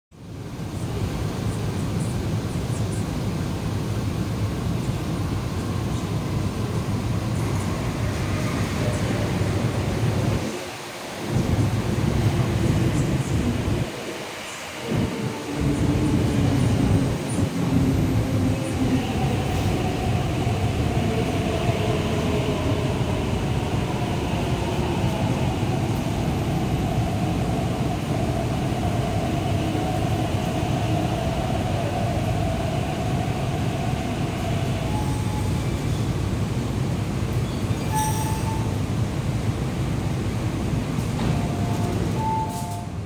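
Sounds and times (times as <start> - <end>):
train wheels rumbling on rail: 0.1 - 43.0
train traction whine: 4.6 - 39.2
train braking: 11.3 - 36.3, 37.4 - 38.9, 41.0 - 43.0.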